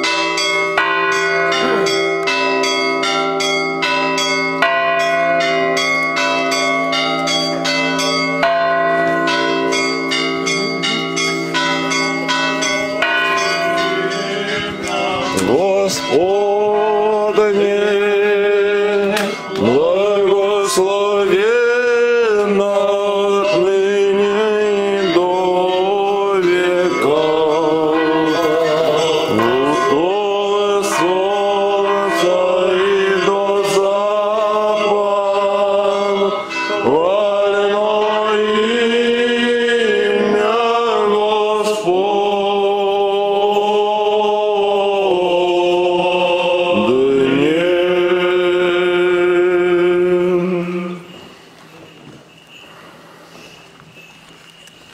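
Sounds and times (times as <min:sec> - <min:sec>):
choir chanting: 0:12.2 - 0:51.9.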